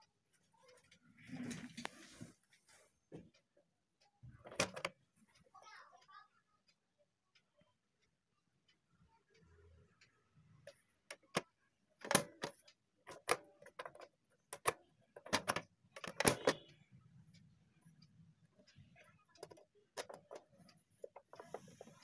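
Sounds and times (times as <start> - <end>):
plastic clicks and clunks: 4.3 - 5.0, 10.6 - 16.7, 19.4 - 22.0.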